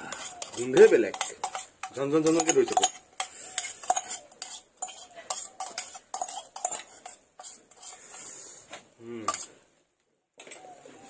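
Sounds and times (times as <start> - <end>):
steel tumbler clinking on wok: 0.1 - 7.9.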